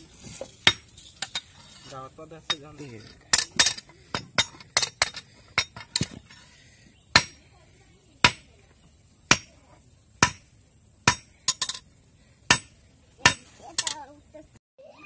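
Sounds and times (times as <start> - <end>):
hammer striking metal: 8.2 - 8.5, 10.2 - 11.8, 12.5 - 14.0.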